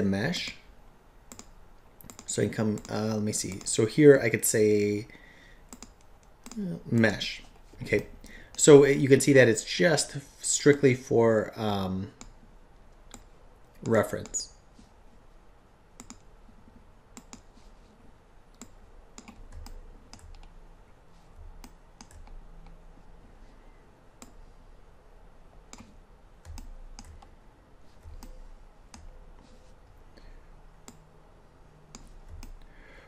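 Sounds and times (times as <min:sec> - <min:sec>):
computer mouse clicks: 0:01.3 - 0:03.8, 0:05.7 - 0:06.7, 0:12.2 - 0:14.4, 0:16.0 - 0:16.3, 0:17.1 - 0:17.5, 0:18.5 - 0:20.6, 0:21.6 - 0:22.8, 0:24.2 - 0:24.4, 0:25.6 - 0:27.3, 0:27.9 - 0:29.5, 0:30.8 - 0:31.1, 0:31.9 - 0:32.7.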